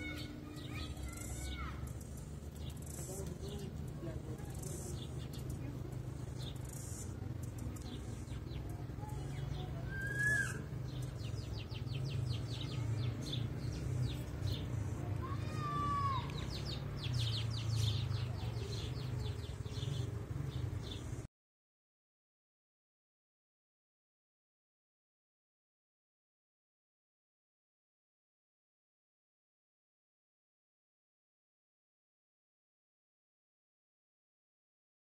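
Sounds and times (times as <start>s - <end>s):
short arching calls: 4.4s - 12.9s.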